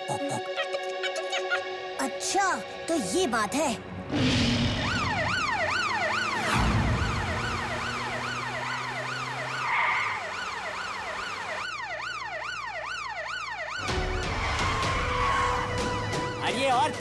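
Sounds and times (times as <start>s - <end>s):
police siren wailing: 4.7s - 17.0s.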